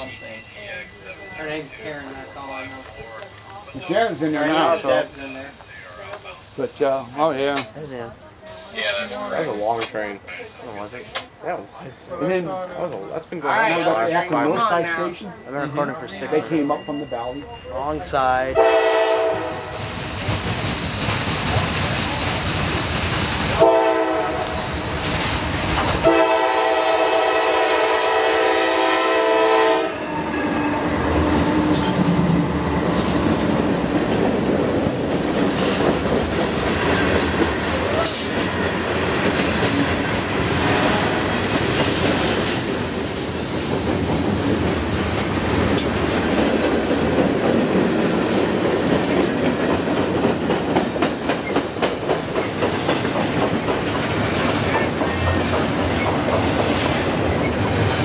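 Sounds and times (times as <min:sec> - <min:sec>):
diesel locomotive engines: 0:00.0 - 0:58.0
train wheels clickety-clack: 0:09.5 - 0:11.4, 0:19.8 - 0:23.6, 0:24.3 - 0:26.2, 0:31.2 - 0:58.0
train horn blast: 0:18.6 - 0:19.8, 0:23.6 - 0:24.6, 0:26.0 - 0:30.3
freight cars rumbling: 0:29.9 - 0:58.0.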